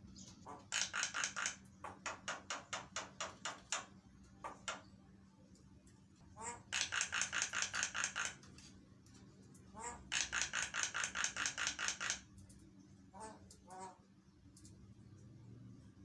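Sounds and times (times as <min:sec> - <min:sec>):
bird harsh rattling chatter: 0:00.4 - 0:03.9, 0:06.4 - 0:08.5, 0:09.7 - 0:12.3.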